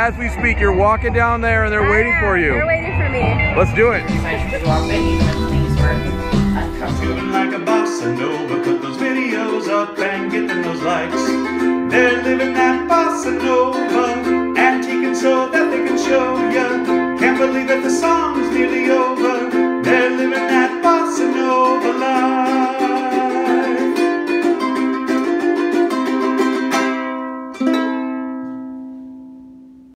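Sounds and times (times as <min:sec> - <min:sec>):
background music: 0:00.0 - 0:27.2.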